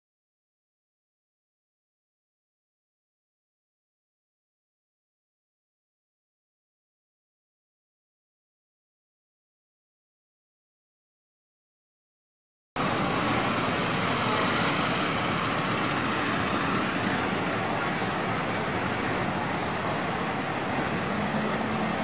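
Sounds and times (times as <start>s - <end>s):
busy street traffic: 12.8s - 22.0s.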